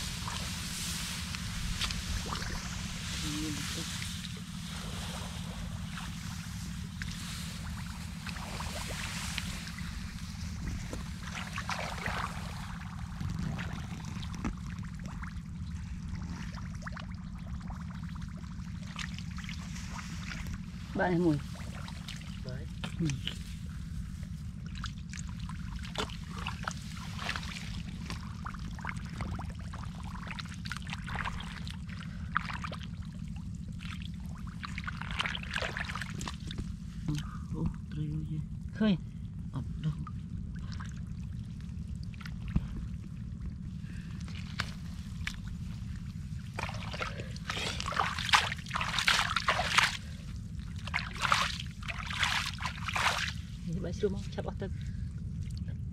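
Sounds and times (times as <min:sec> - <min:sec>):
hands splashing in muddy water: 0:00.0 - 0:15.4, 0:24.6 - 0:36.8, 0:43.9 - 0:53.6
steady low hum: 0:00.0 - 0:55.9
steady low rumble: 0:00.0 - 0:55.9
water trickling: 0:40.5 - 0:54.1.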